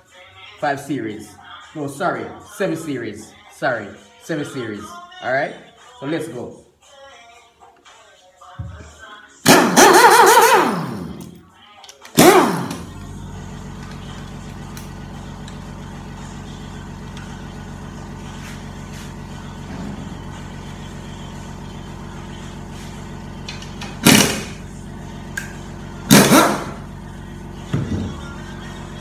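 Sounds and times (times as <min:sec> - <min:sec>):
air impact wrench bursts: 0:09.5 - 0:11.4, 0:12.2 - 0:13.0, 0:22.5 - 0:24.7, 0:26.1 - 0:26.9
low machine hum: 0:12.8 - 0:29.0.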